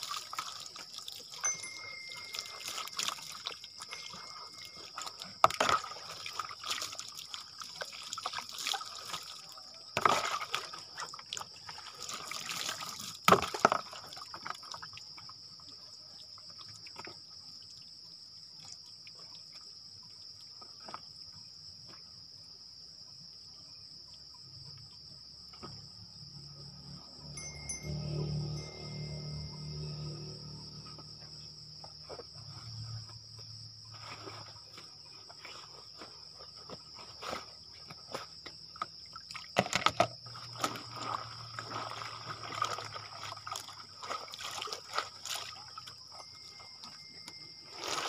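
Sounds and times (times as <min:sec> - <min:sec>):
water pouring and splashing: 0:00.0 - 0:15.5, 0:33.9 - 0:48.0.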